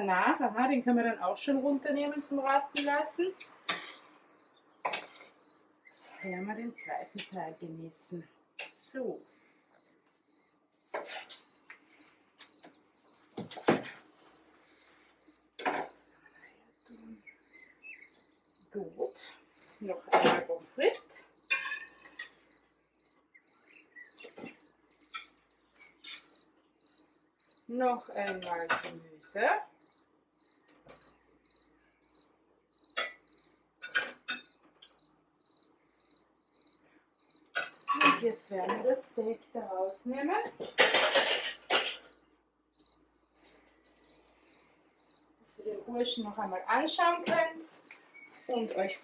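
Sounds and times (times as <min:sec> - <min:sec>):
cricket chirping: 0:01.5 - 0:49.0
metal utensils clinking on dish: 0:21.5 - 0:22.4, 0:40.6 - 0:42.2.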